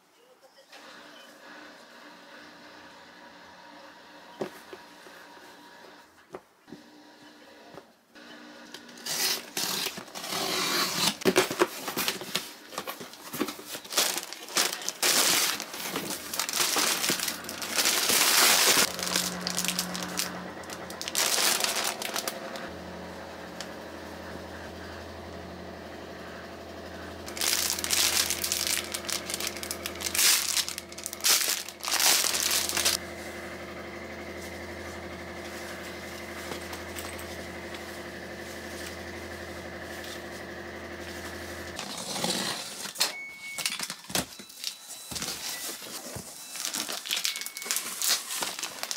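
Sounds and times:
packaging crinkling: 0:09.0 - 0:22.7, 0:27.3 - 0:33.0, 0:43.6 - 0:48.9.

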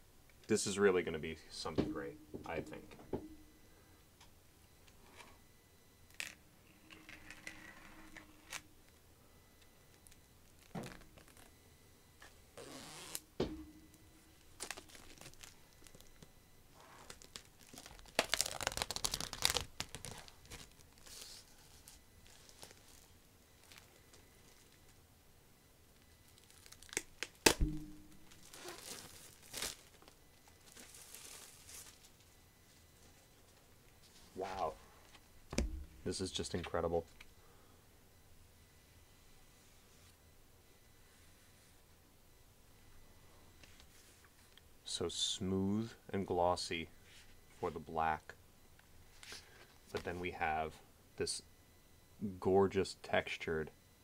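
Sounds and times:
dull thump: 0:01.7 - 0:02.5, 0:13.4 - 0:13.9, 0:27.6 - 0:28.2, 0:35.5 - 0:36.1
plastic wrap crinkling: 0:14.4 - 0:25.0, 0:26.0 - 0:32.3.

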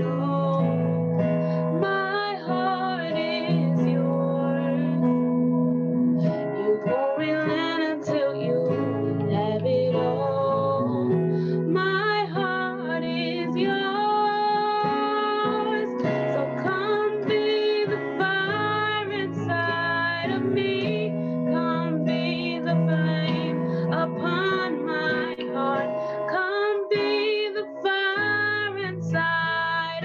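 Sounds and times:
keyboard chords: 0:00.0 - 0:30.0
woman singing: 0:00.0 - 0:30.0.

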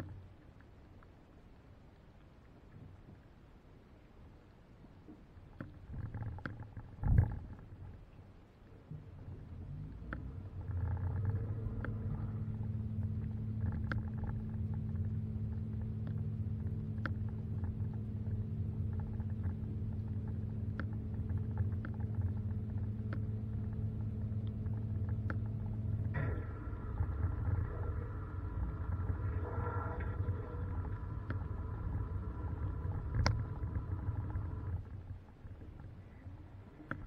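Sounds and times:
dishwasher motor humming: 0:10.3 - 0:34.9.

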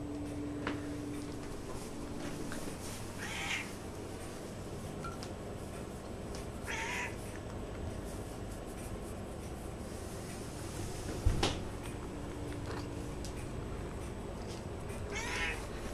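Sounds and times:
faint steady hum: 0:00.0 - 0:15.9
cat meowing: 0:03.2 - 0:03.7, 0:06.6 - 0:07.2, 0:15.1 - 0:15.7.

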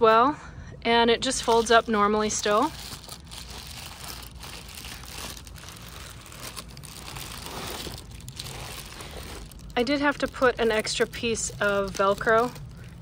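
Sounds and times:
foil insulation crinkling: 0:01.2 - 0:13.0.

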